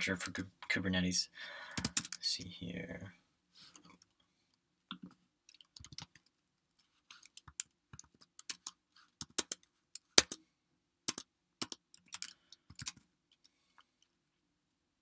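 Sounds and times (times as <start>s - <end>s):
typing on computer keyboard: 1.8s - 2.2s, 4.9s - 6.3s, 7.2s - 10.4s, 11.1s - 13.0s.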